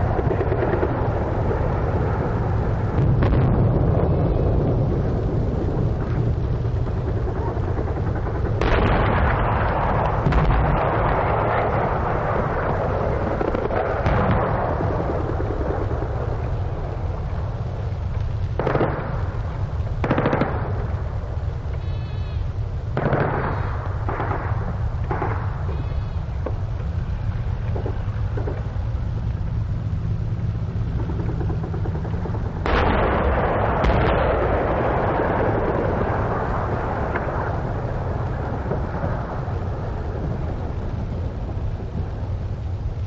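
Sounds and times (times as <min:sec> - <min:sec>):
artillery and mortar fire: 0:00.0 - 0:28.8, 0:30.6 - 0:42.8
low rumble: 0:00.0 - 0:43.0
machine-gun fire: 0:18.6 - 0:19.3, 0:20.0 - 0:20.8, 0:23.0 - 0:25.4, 0:31.0 - 0:36.1.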